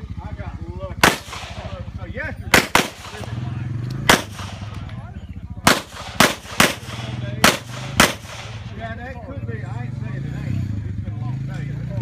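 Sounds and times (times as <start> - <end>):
pistol shots: 1.0 - 5.0, 5.6 - 8.9.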